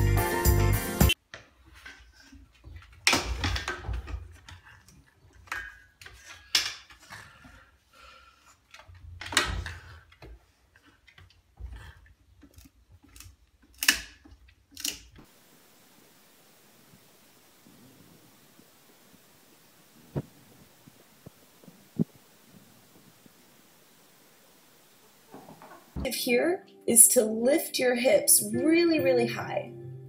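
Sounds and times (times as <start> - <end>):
faint hum: 15.3 - 26.0.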